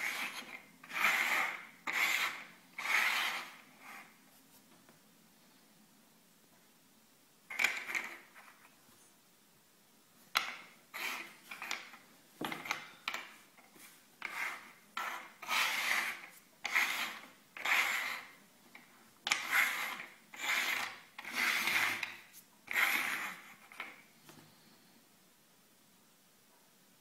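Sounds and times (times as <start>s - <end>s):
shells scraping on wooden table: 0.0s - 4.2s, 7.5s - 8.6s, 10.4s - 13.4s, 14.2s - 24.1s.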